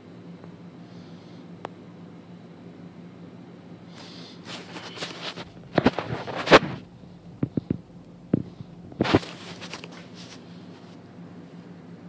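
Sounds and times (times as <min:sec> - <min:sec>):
faint low hum: 0:00.0 - 0:12.0
camera handling knocks and rubs: 0:04.5 - 0:10.4.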